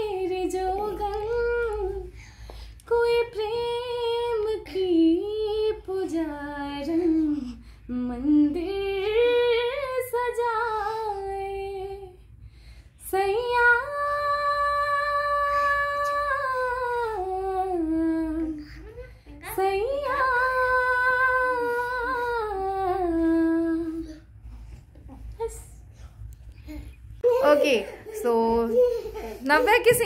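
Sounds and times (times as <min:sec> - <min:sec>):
woman singing unaccompanied: 0:00.0 - 0:02.2, 0:02.8 - 0:12.2, 0:13.0 - 0:24.2.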